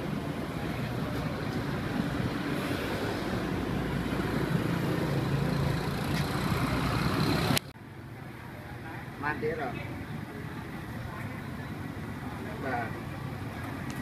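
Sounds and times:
street traffic: 0.0 - 14.0.

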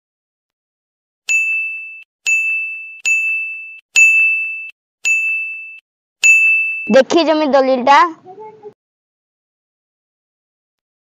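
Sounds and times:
bell-like ding: 1.3 - 7.1.

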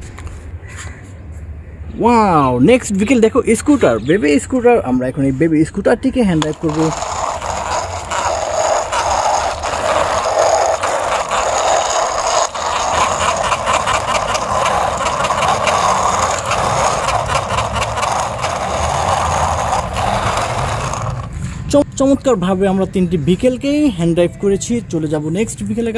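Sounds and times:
toy scooter wheels whirring: 6.4 - 21.7.

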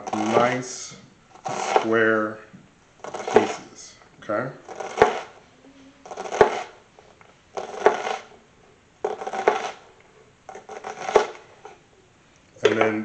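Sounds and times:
knife crunching through onion: 1.4 - 2.0, 3.0 - 3.7, 4.6 - 5.4, 6.1 - 6.8, 7.5 - 8.3, 9.0 - 9.9, 10.5 - 11.7.

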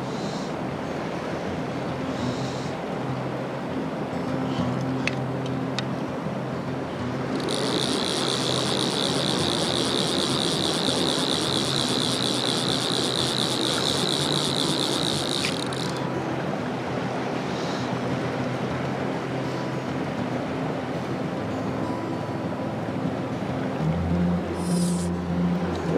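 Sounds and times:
shallow stream rushing: 0.0 - 25.9
fishing reel click drag ratcheting: 7.2 - 16.1, 24.6 - 25.2.

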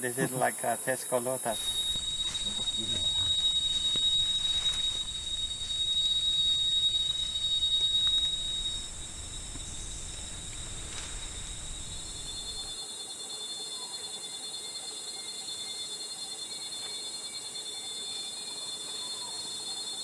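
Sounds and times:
jungle insects droning: 0.0 - 20.0
low rumble: 1.6 - 12.7.

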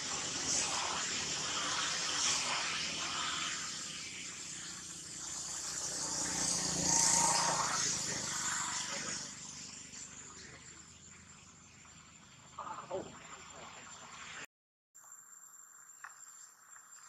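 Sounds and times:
outdoor background noise: 0.0 - 17.0
vehicle passing: 0.1 - 12.5.

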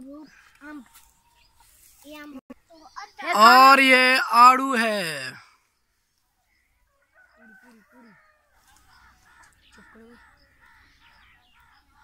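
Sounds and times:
low bird calls: 7.4 - 12.0.

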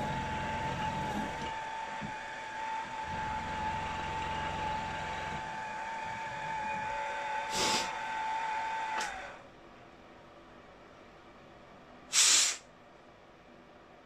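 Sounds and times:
milling machine spindle whine: 0.0 - 9.4
short hiss: 12.1 - 12.7.

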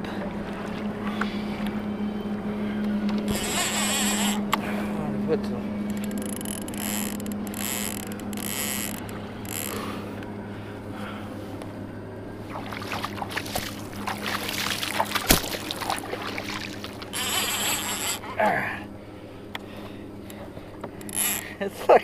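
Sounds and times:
water splashing against kayak hull: 12.4 - 18.3.

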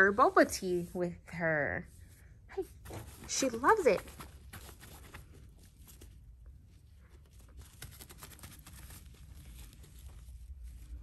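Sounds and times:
fabric tunnel rustling and scratches: 2.9 - 11.0.

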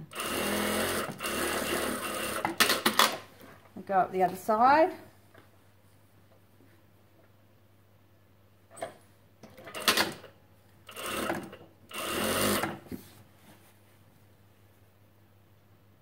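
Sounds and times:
sewing machine stitching: 0.0 - 3.2, 9.5 - 12.8.

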